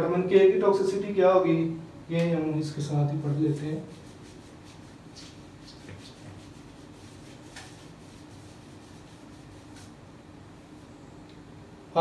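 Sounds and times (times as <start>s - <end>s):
whiteboard being wiped: 3.5s - 10.0s.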